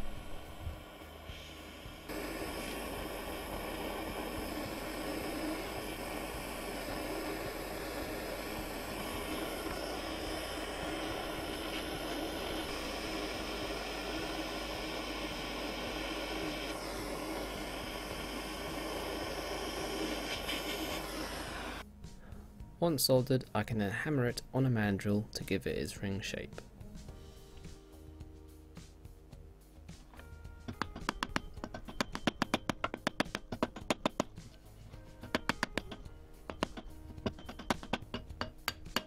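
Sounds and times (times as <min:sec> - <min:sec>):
butane torch hissing: 0:00.0 - 0:21.9, 0:30.7 - 0:39.0.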